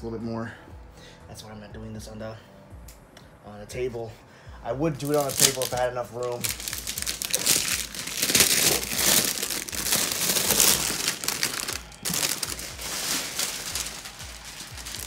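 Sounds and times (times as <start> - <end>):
cardboard packaging crinkling: 5.0 - 15.0.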